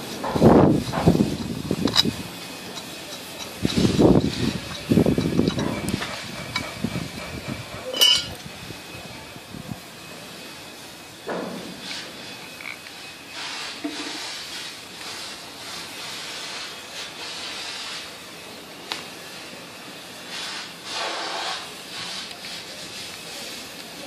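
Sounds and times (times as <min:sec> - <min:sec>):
hands rubbing and scraping parts: 0:00.0 - 0:08.5, 0:11.5 - 0:18.2, 0:20.2 - 0:24.0
steady hiss: 0:00.0 - 0:24.0.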